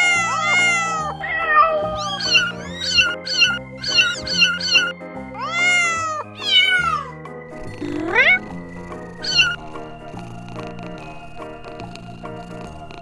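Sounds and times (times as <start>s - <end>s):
kittens mewing: 0.0s - 7.2s, 7.8s - 8.5s, 9.1s - 9.6s
background music: 0.0s - 13.0s.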